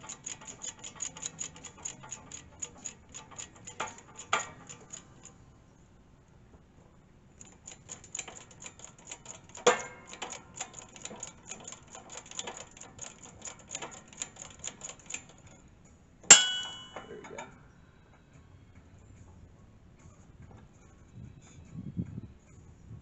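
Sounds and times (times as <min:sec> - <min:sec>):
hydraulic press metallic ticking: 0:00.0 - 0:05.6, 0:07.4 - 0:15.6, 0:16.3 - 0:17.6
sharp metal clank: 0:16.3 - 0:17.4.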